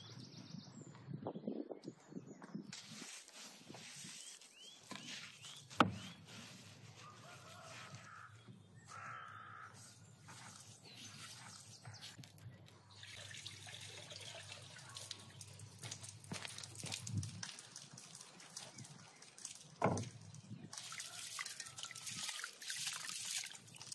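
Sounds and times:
soft handling of meat: 0:02.8 - 0:13.0
bird chirps: 0:04.0 - 0:06.4.

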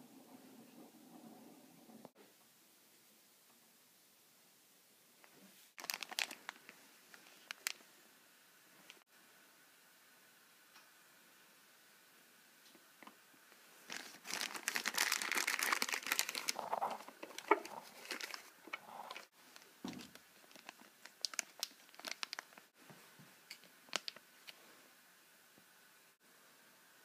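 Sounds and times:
plastic bag crinkling: 0:05.8 - 0:07.8, 0:13.8 - 0:22.7, 0:23.5 - 0:24.2.

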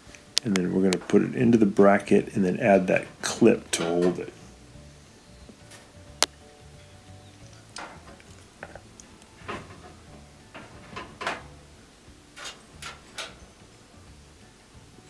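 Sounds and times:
metal parts clicking and scraping: 0:12.4 - 0:13.6.

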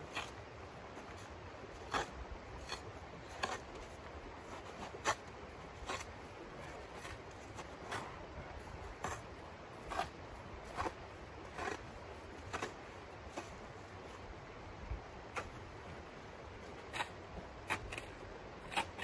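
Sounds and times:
shovel scraping packed snow: 0:00.0 - 0:14.2.

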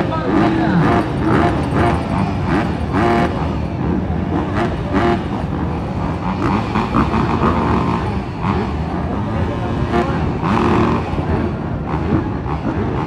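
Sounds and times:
spectator voices: 0:00.0 - 0:01.5
motocross bike engines revving: 0:00.0 - 0:13.0.

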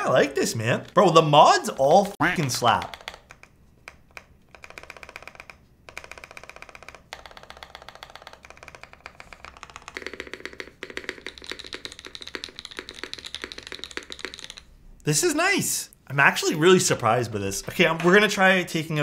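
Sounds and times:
mechanical keyboard typing: 0:00.2 - 0:14.7.

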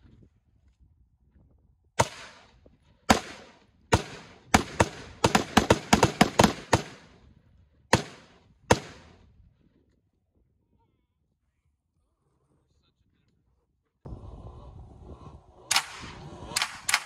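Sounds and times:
rifle shots with echo: 0:02.0 - 0:07.2, 0:07.9 - 0:09.2.

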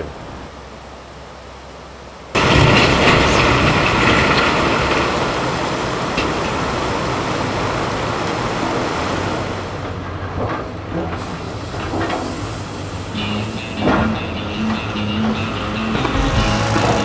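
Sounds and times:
truck engine running: 0:09.8 - 0:17.0.

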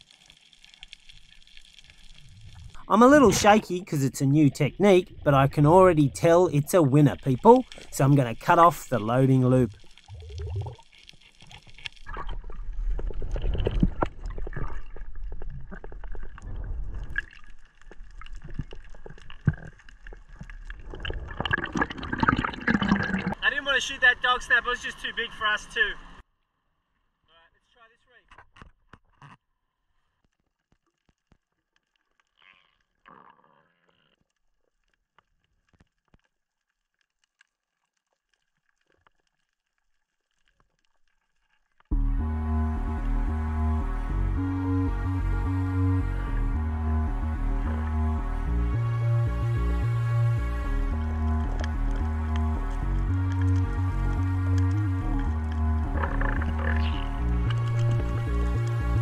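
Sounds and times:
water gurgling underwater: 0:09.7 - 0:23.4, 0:55.1 - 0:58.2
faint underwater clicks: 0:50.9 - 0:59.0.

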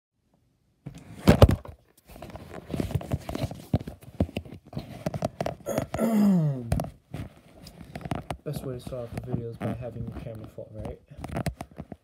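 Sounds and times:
camera falling over with knock: 0:00.9 - 0:01.8
clicks bumps and rustling: 0:00.9 - 0:06.0, 0:06.7 - 0:12.0.

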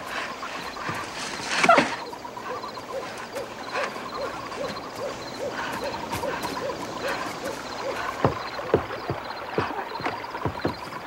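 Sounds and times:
soft hooting calls: 0:00.0 - 0:11.0.

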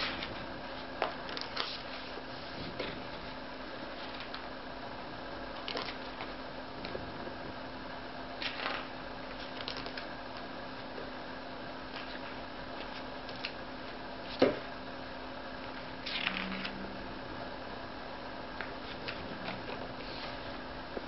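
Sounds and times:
book page turning: 0:01.3 - 0:02.1.

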